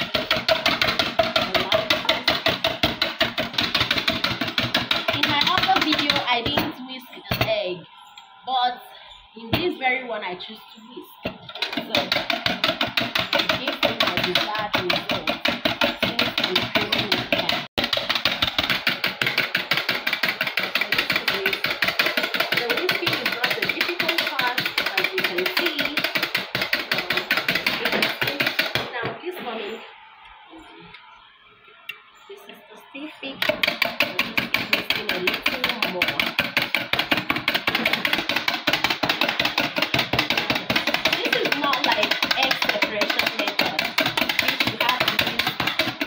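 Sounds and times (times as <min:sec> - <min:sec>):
whisk clattering in metal pan: 0:00.0 - 0:06.6, 0:11.3 - 0:28.9, 0:33.4 - 0:46.0.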